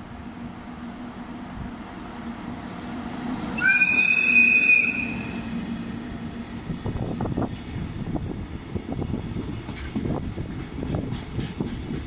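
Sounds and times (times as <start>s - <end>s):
freight train rumbling past: 0.0s - 12.0s
locomotive horn blast: 3.6s - 5.5s.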